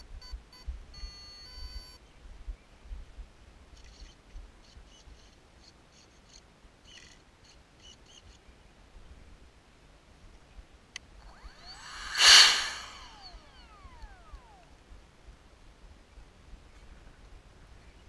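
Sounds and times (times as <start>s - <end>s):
wind rumbling on microphone: 11.7s - 13.3s.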